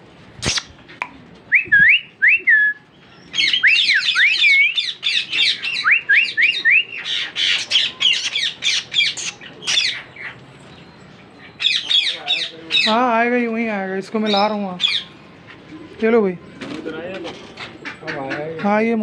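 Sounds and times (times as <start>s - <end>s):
parakeets chirping and screeching: 3.0s - 13.2s, 14.1s - 15.3s.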